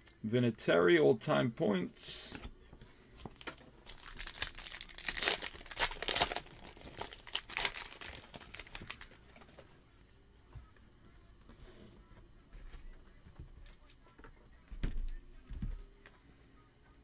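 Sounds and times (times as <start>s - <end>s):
foil wrapper tearing and crinkling: 3.4s - 9.2s.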